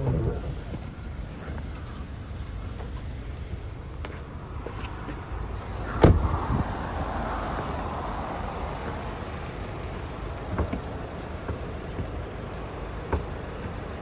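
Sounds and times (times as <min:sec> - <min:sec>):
car engine idling: 0:00.0 - 0:14.0
car door shutting: 0:05.9 - 0:06.7, 0:10.4 - 0:12.2, 0:13.0 - 0:13.8.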